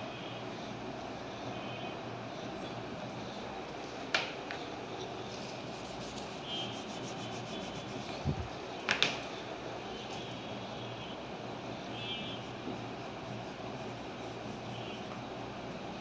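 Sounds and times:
steady background noise: 0.0s - 16.0s
marker pen rubbing on whiteboard: 5.4s - 8.4s, 12.2s - 15.3s.

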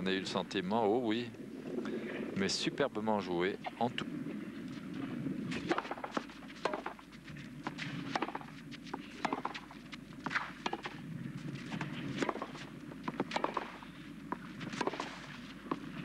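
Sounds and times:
tennis balls struck and bounced: 5.5s - 11.0s, 11.6s - 16.0s.

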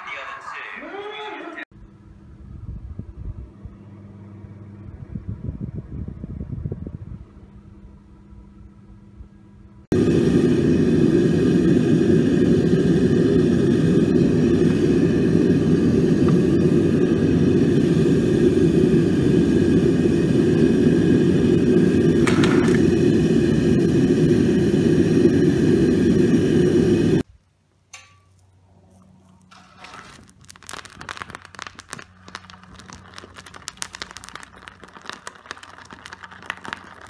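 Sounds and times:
furnace burner roaring: 1.8s - 27.3s, 27.9s - 37.0s.

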